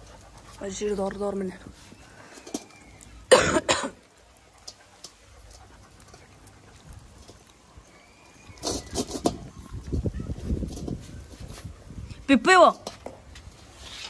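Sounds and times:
puppies eating from steel bowl: 0:00.0 - 0:03.3, 0:04.0 - 0:11.8
loud double cough: 0:03.3 - 0:04.0.

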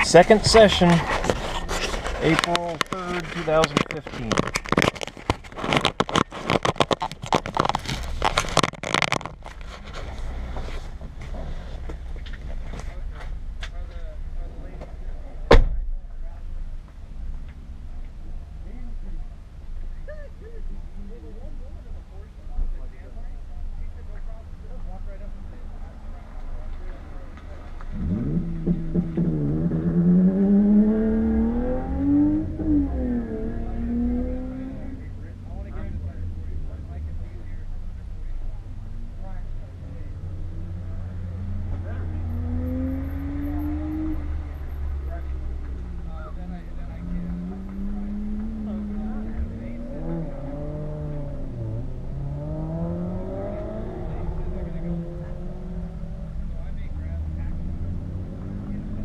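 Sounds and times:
car engine accelerating: 0:00.0 - 0:15.4, 0:23.9 - 0:59.0
camera being handled: 0:03.7 - 0:09.6.

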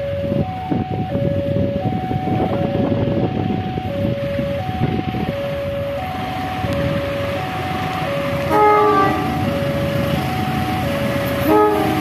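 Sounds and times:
two-tone warning alarm: 0:00.0 - 0:12.0
diesel locomotive horn blast: 0:08.3 - 0:12.0.

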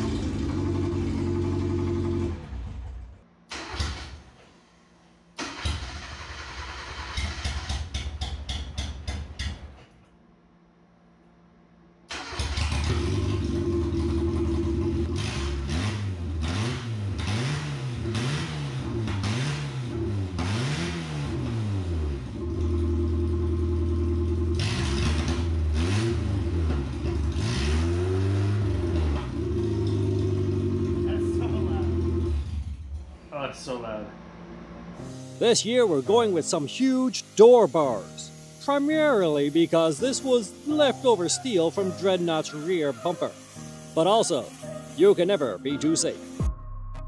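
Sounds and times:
car engine revving loudly: 0:00.0 - 0:02.9, 0:12.5 - 0:32.8
starter cranking engine: 0:00.0 - 0:04.2, 0:05.4 - 0:08.2, 0:12.1 - 0:17.4.

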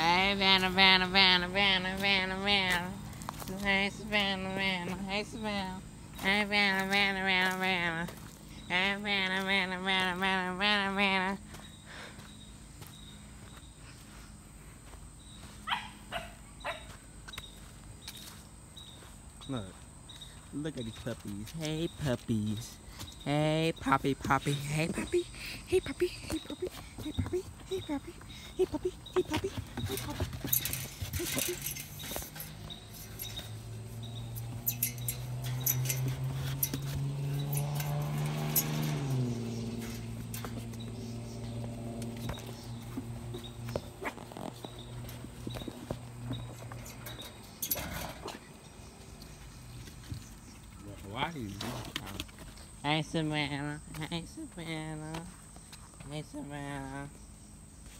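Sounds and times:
low motor hum: 0:00.0 - 0:57.8
dog yelping: 0:15.6 - 0:16.9
puppies rattling wire fence: 0:28.6 - 0:43.9, 0:44.5 - 0:49.2.

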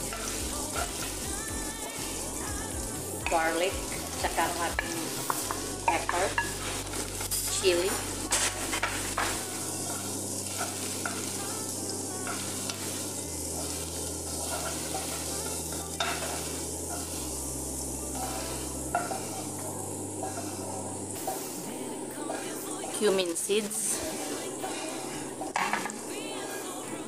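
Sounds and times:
onions sizzling in a pan: 0:00.0 - 0:27.0
wooden spatula scraping a pan: 0:04.2 - 0:17.3, 0:18.1 - 0:19.6, 0:20.2 - 0:21.5.

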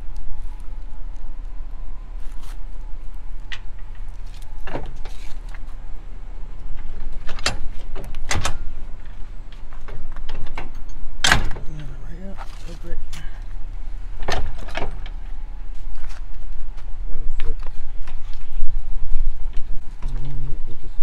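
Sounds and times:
steady low hum: 0:00.0 - 0:21.0
metal clanks of trailer coupler: 0:07.1 - 0:08.8, 0:09.8 - 0:11.9, 0:14.2 - 0:15.2.

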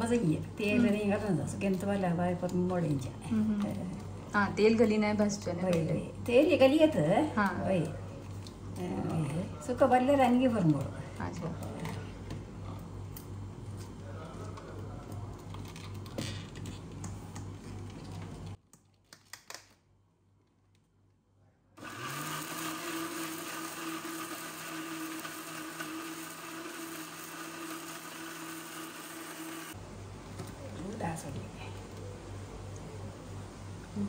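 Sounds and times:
mixer grinder motor grinding: 0:21.8 - 0:29.8.

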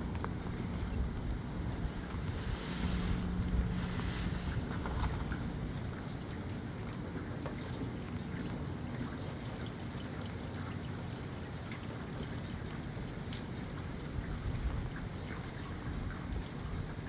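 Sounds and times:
raindrop ticks: 0:00.0 - 0:03.8, 0:04.4 - 0:17.0
steady rush of wind: 0:00.0 - 0:07.0
wind rumble on microphone: 0:00.0 - 0:07.0, 0:13.0 - 0:17.0.

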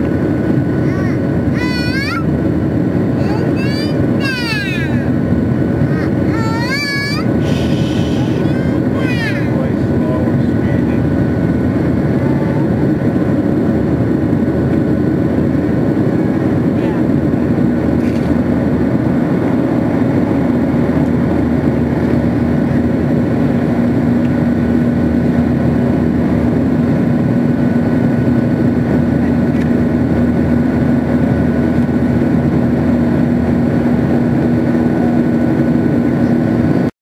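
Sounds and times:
jet engine and airflow drone: 0:00.0 - 0:36.9.

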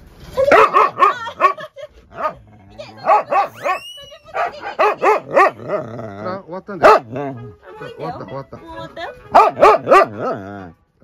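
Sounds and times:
dog barking and yipping: 0:00.4 - 0:05.8, 0:06.8 - 0:07.3, 0:09.0 - 0:10.7.

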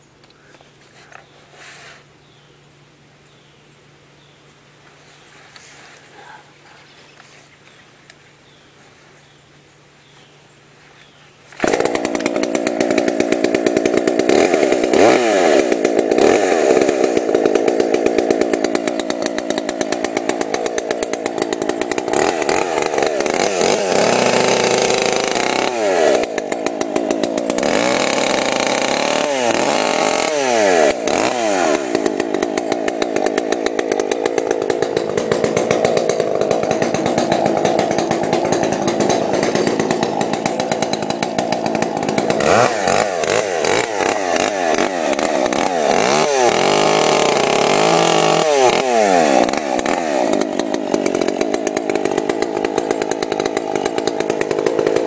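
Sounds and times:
chainsaw engine revving: 0:11.5 - 0:55.0.

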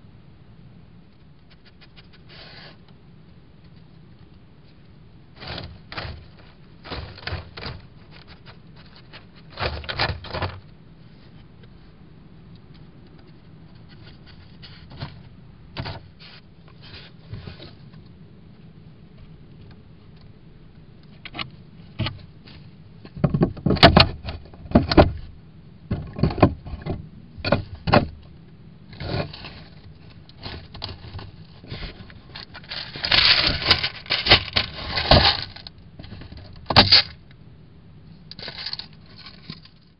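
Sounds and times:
animal scratching in dry leaves: 0:29.0 - 0:35.7.

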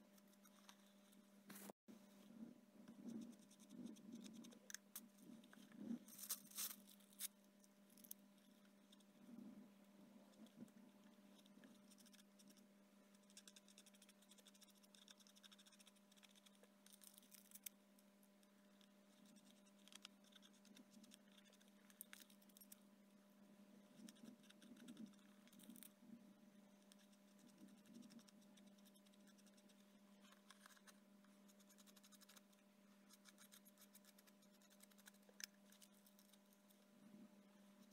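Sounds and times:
steady low hum: 0:00.0 - 0:37.9.

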